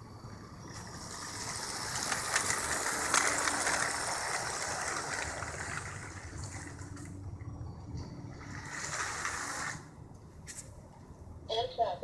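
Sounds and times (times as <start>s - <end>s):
toy train wheels clattering: 0.7s - 7.2s, 8.3s - 9.9s.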